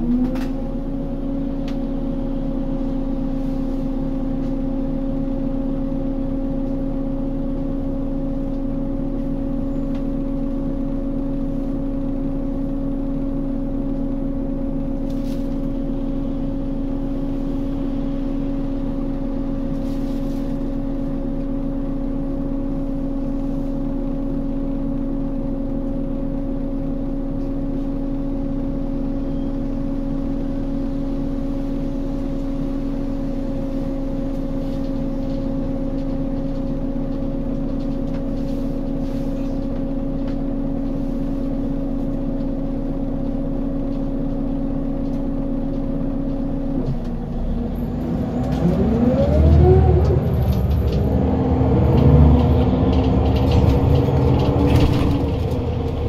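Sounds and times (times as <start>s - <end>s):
bus engine rumble: 0.0s - 56.0s
gearbox whine: 44.4s - 56.0s.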